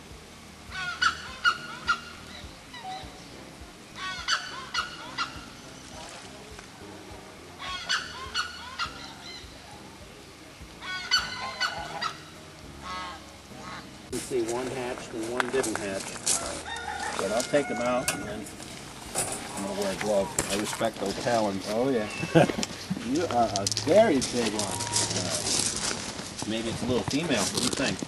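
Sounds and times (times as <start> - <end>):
waterfowl honking: 0.7 - 3.2, 4.0 - 6.2, 7.6 - 9.6, 10.8 - 14.6, 16.4 - 18.4, 19.4 - 20.8, 24.0 - 26.2.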